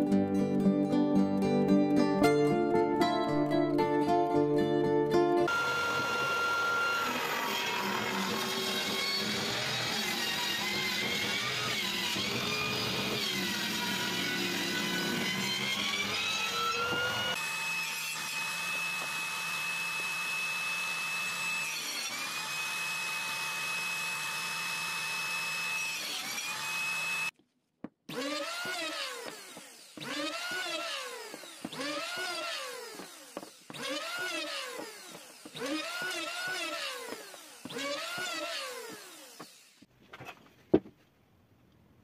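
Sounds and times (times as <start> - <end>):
electric hand planer: 5.4 - 27.3, 28.1 - 39.9
table saw whining: 5.4 - 27.4, 28.1 - 39.9.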